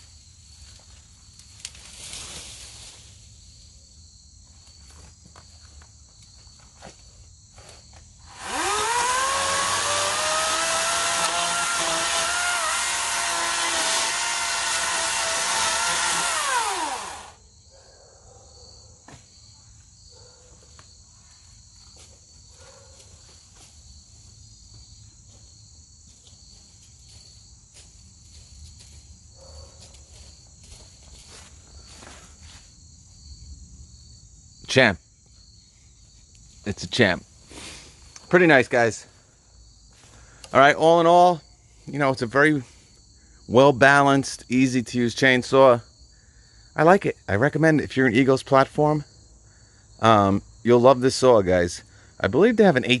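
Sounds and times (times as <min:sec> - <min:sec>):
battery chainsaw whine: 0:08.2 - 0:17.4.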